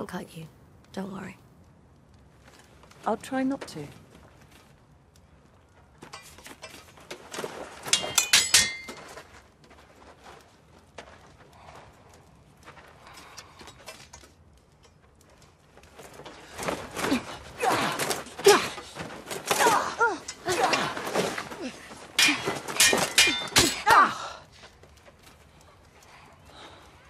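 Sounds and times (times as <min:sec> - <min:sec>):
swords clashing steel on steel: 0:07.9 - 0:09.1, 0:22.1 - 0:24.2.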